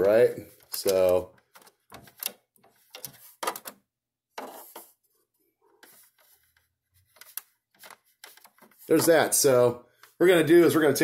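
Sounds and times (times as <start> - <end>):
hands handling plastic printer: 0.0 - 5.0.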